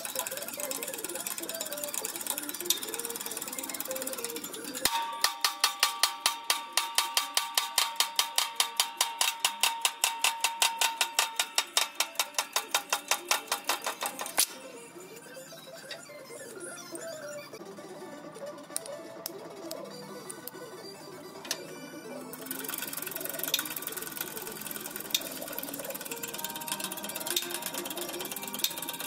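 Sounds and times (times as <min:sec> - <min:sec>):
hydraulic press clicking: 0:00.0 - 0:14.6
steady ringing tone: 0:00.0 - 0:17.6, 0:20.9 - 0:29.0
faint background music: 0:00.0 - 0:29.0.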